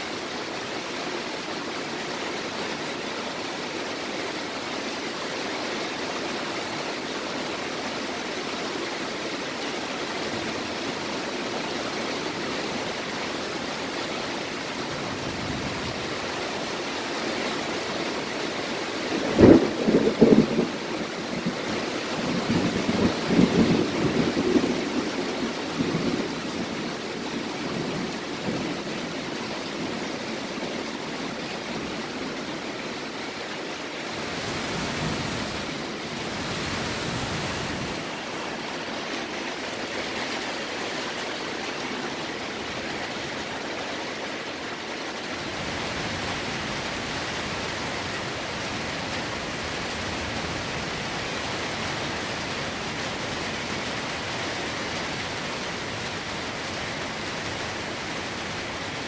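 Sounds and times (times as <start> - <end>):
heavy rain hissing: 0.0 - 59.0
thunder crack and rumble: 19.2 - 21.7.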